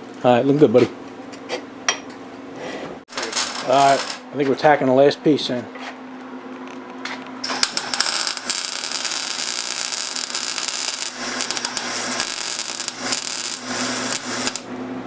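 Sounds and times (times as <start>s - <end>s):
welding arc crackling: 3.1s - 4.2s, 7.4s - 14.7s.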